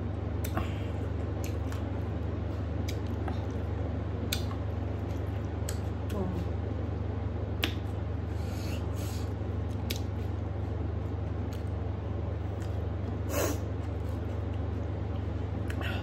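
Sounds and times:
steady low hum: 0.0s - 16.0s
person sniffing: 13.3s - 13.6s.

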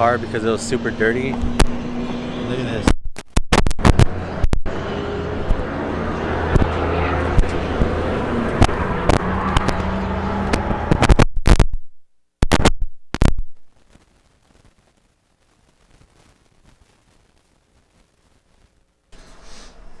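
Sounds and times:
microphone crackling and pops: 1.3s - 1.8s, 2.8s - 4.8s, 5.4s - 5.7s, 6.5s - 18.9s.

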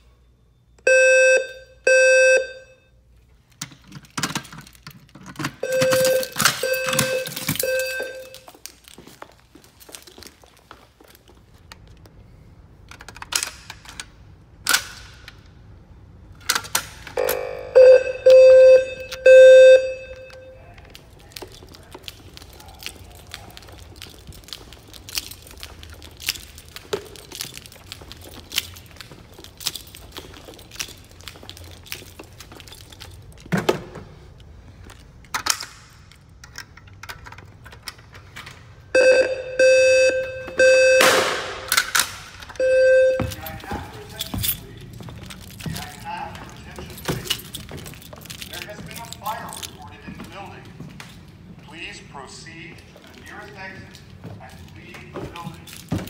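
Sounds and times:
fire alarm tone pulses: 0.8s - 3.0s, 5.6s - 8.6s, 17.2s - 20.6s, 39.0s - 41.7s, 42.6s - 43.5s
footsteps on hard floor: 43.1s - 51.5s.

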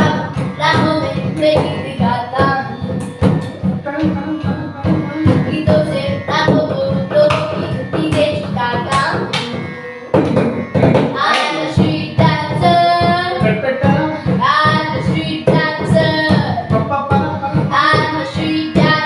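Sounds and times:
child singing: 0.0s - 19.0s
percussion-led instrumental music: 0.0s - 19.0s.

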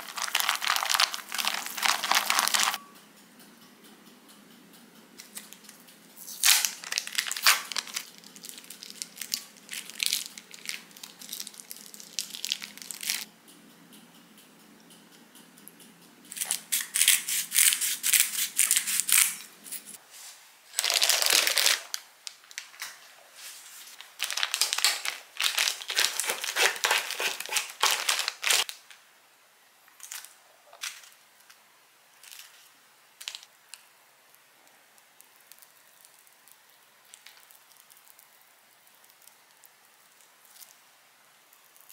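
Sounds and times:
plastic piping bag crinkling: 0.0s - 2.8s, 6.4s - 13.3s, 20.7s - 22.8s, 23.9s - 28.9s, 35.1s - 40.8s.

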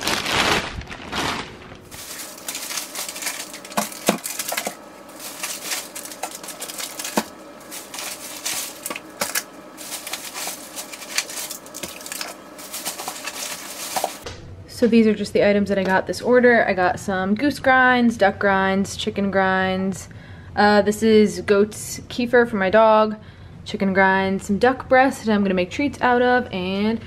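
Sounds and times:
packaged food clattering: 0.0s - 14.2s
plastic bag crinkling: 0.0s - 14.2s
faint steady hum: 0.0s - 27.0s.

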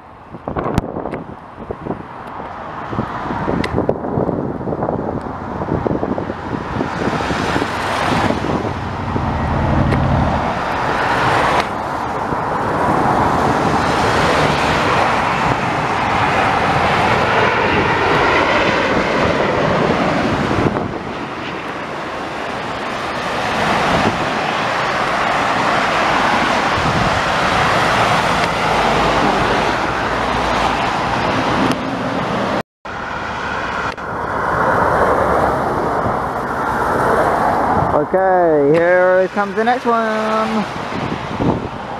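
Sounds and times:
jet engines roaring overhead: 0.0s - 41.9s.

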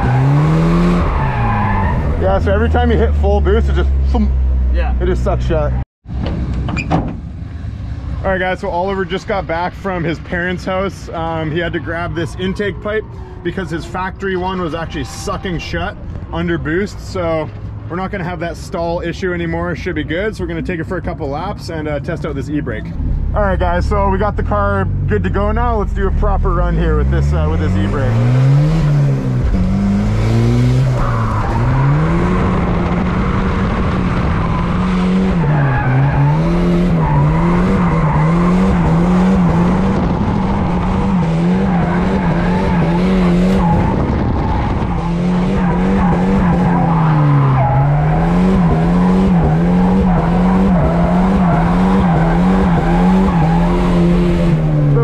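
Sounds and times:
car engine revving high: 0.0s - 5.4s, 23.1s - 55.0s.

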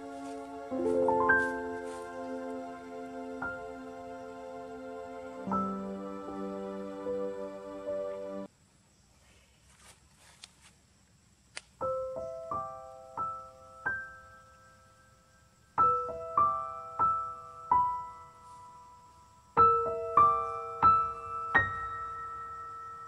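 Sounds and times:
soft solo piano music: 0.0s - 8.5s, 11.8s - 14.7s, 15.8s - 19.0s, 19.6s - 23.0s.

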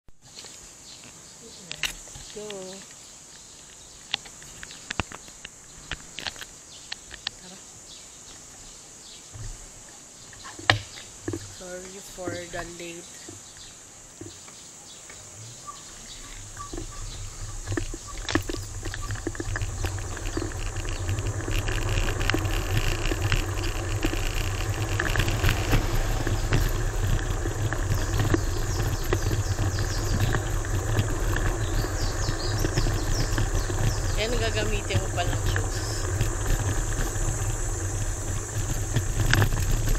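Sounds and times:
road noise: 0.1s - 39.9s
insect chirring: 0.2s - 39.9s
scooter clicks and rattles: 0.3s - 7.5s, 10.3s - 39.9s
wind rumble on microphone: 15.4s - 39.9s.

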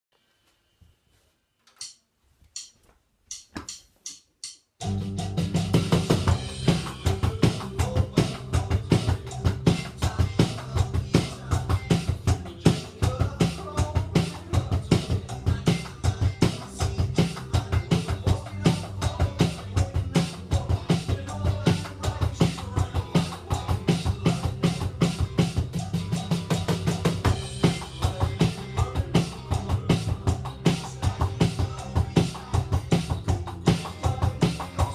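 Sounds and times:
electronic drum kit: 2.6s - 34.9s
rock backing track: 4.8s - 34.9s.

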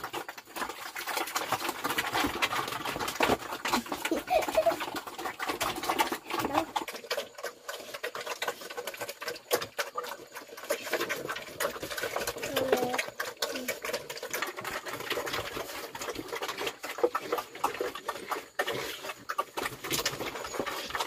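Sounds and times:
pigs eating from trough: 0.0s - 21.0s.

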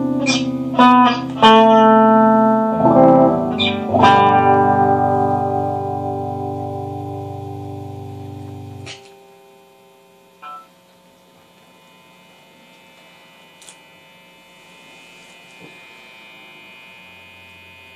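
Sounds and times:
electric guitar ringing notes: 0.0s - 11.0s
guitar amplifier hum and buzz: 0.0s - 17.9s.

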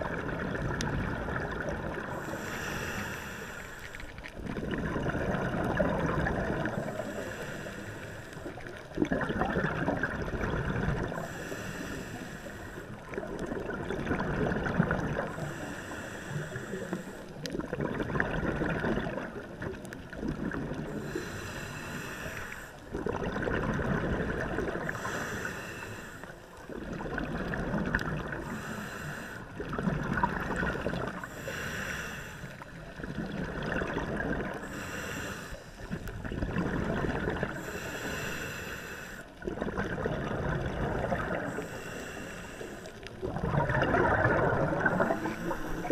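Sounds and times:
bubbling exhale underwater: 0.0s - 3.2s, 4.3s - 7.6s, 8.4s - 11.5s, 12.9s - 15.8s, 17.4s - 21.3s, 22.9s - 25.5s, 26.7s - 31.6s, 32.7s - 35.2s, 35.8s - 38.6s, 39.4s - 41.7s, 43.0s - 45.9s
hissing regulator inhale: 2.1s - 4.3s, 6.7s - 8.7s, 11.1s - 13.1s, 15.3s - 17.5s, 20.9s - 22.9s, 24.8s - 26.6s, 28.3s - 29.6s, 31.0s - 33.0s, 34.6s - 36.3s, 37.5s - 39.4s, 41.3s - 43.1s, 44.7s - 45.9s.

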